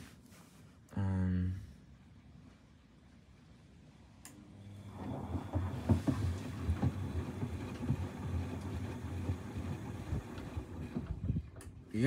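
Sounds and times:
washing machine drum sloshing: 0:04.8 - 0:11.8
splashes and knocks: 0:05.0 - 0:09.7.

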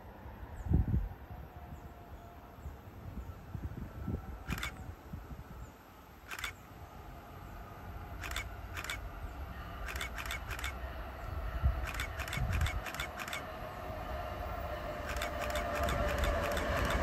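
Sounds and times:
train rumble: 0:00.0 - 0:17.0
short sharp ticks: 0:06.3 - 0:06.6, 0:08.2 - 0:09.0, 0:09.8 - 0:10.8, 0:11.8 - 0:13.5, 0:15.1 - 0:17.0.

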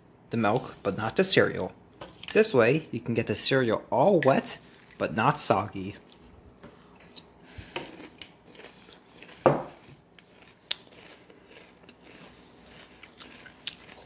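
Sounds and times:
person chewing crunchy cereal: 0:04.6 - 0:05.1, 0:05.8 - 0:14.0.

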